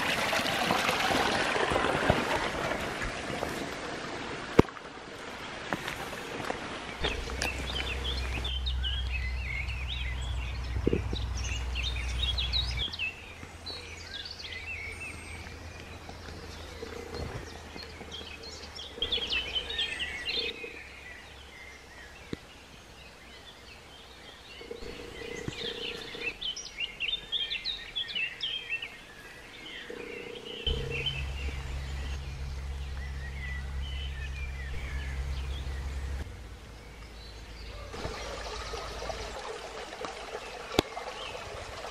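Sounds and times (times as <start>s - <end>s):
small birds chirping and singing: 6.9s - 39.6s
low steady rumble: 7.0s - 22.1s, 29.7s - 40.6s.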